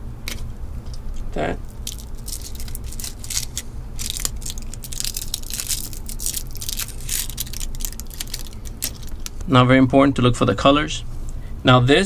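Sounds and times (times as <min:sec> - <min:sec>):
plastic bag crinkling: 0:01.7 - 0:09.5.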